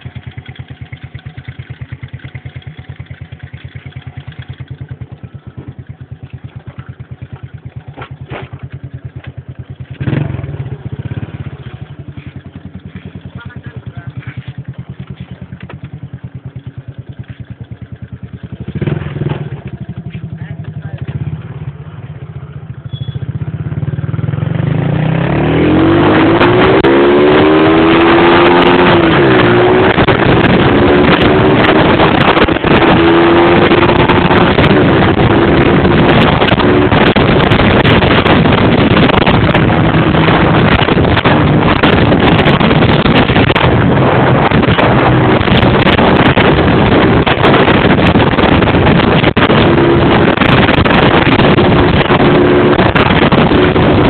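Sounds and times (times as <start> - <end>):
motorcycle engine pulling away: 0.0 - 54.0
wind noise on microphone: 25.5 - 54.0.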